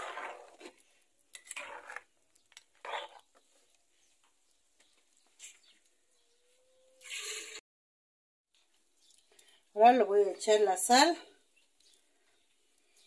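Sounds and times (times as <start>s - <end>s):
spoon scraping through thick sauce: 0.0s - 3.8s.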